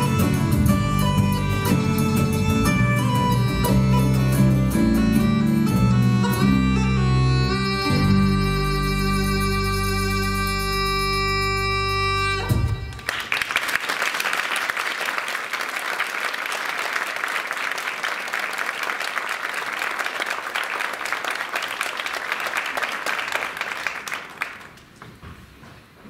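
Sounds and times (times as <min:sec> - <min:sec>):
music chord: 0:00.0 - 0:13.0
audience applause: 0:12.9 - 0:25.0.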